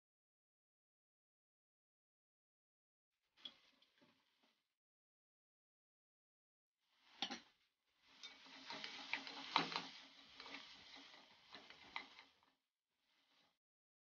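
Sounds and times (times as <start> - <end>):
light sizzle: 8.0 - 13.6
wooden spatula scraping a pot: 8.1 - 12.5.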